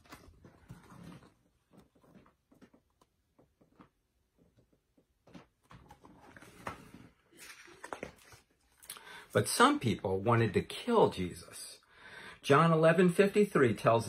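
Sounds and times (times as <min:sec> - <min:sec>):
picture book clicks and rustles: 0:00.0 - 0:08.9.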